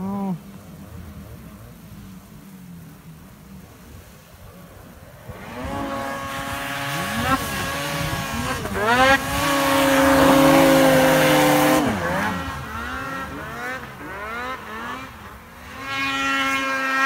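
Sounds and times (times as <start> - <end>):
snowmobile engines revving: 3.6 - 17.0.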